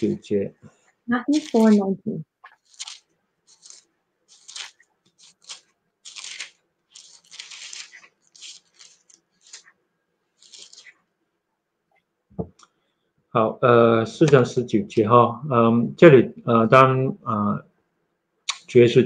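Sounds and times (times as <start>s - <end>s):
thin pages rustling: 2.4s - 9.8s, 10.4s - 11.0s.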